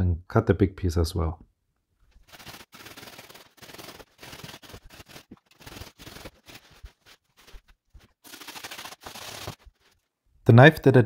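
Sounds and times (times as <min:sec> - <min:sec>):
bread knife sawing foam: 0:02.2 - 0:10.0.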